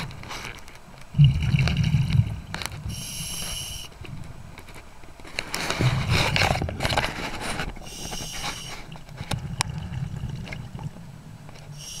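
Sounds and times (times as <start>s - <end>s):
low rumble of water: 0.0s - 12.0s
exhaled bubbles rushing: 1.1s - 3.0s, 8.9s - 11.4s.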